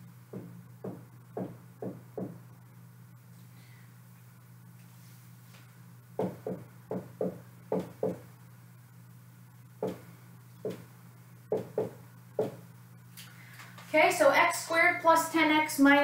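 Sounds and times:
faint low hum: 0.0 - 16.0
marker tapping on whiteboard: 0.3 - 2.4, 6.2 - 8.2, 9.8 - 10.0, 10.6 - 10.9, 11.5 - 12.6.

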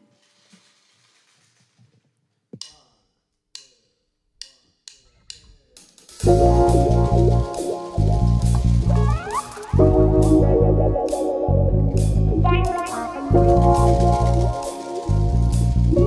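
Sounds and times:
rock band playing groove: 6.2 - 16.0.

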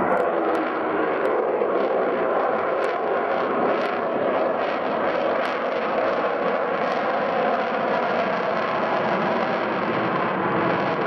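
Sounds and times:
jet engines roaring: 0.0 - 11.0.

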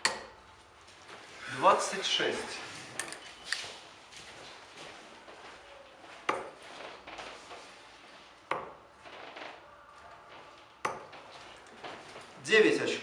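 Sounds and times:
darts thudding into dartboard: 6.2 - 7.0, 8.4 - 9.0, 10.8 - 11.3.

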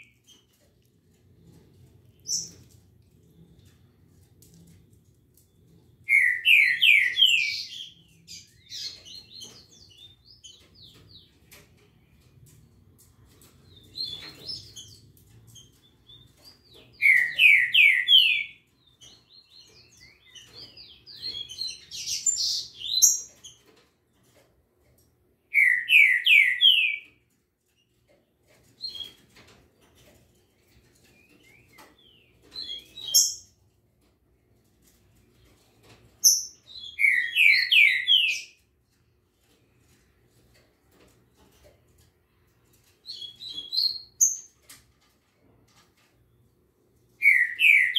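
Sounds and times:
songbirds singing: 0.0 - 44.7, 46.0 - 47.9
soft bird chirps: 1.9 - 12.8.

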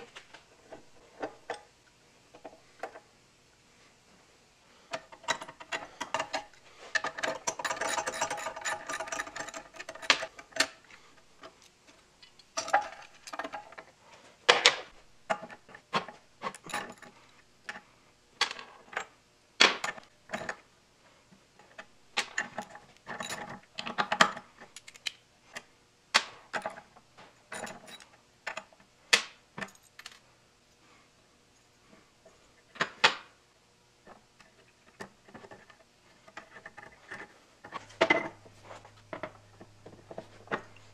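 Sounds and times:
metallic clicks and knocks: 4.9 - 10.8.

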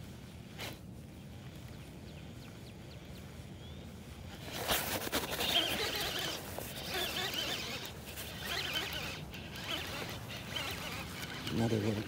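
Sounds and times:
fishing reel cranking: 5.4 - 12.0.

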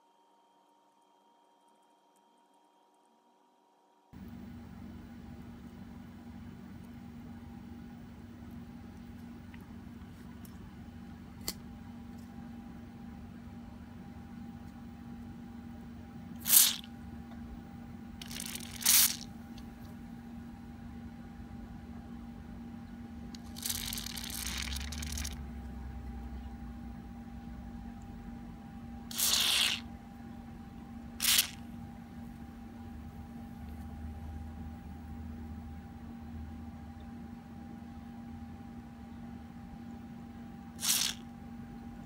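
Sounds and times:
steady low hum: 4.1 - 42.0
aerosol spray hissing: 29.1 - 29.8, 31.2 - 31.6, 40.8 - 41.2.

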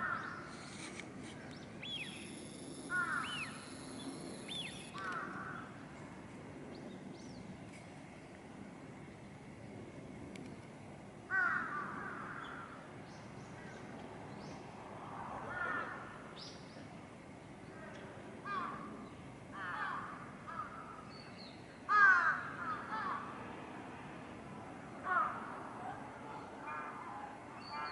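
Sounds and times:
crows cawing: 2.9 - 3.5, 4.9 - 5.7, 11.3 - 12.7, 19.6 - 21.0, 21.9 - 23.3, 25.0 - 25.5.

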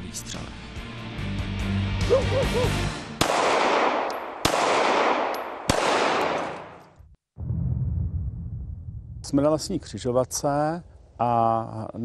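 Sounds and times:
gunshots with echo: 3.2 - 6.9.

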